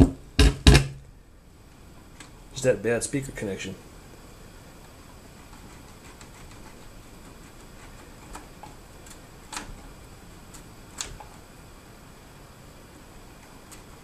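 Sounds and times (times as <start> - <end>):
amplifier hissing: 0.0 - 5.5.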